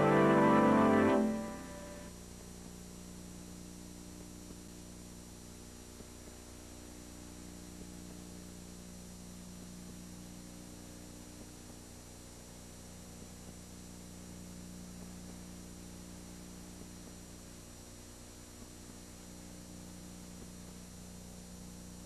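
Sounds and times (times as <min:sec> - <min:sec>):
music: 0:00.0 - 0:02.1
faint electrical hum with hiss: 0:00.0 - 0:22.0.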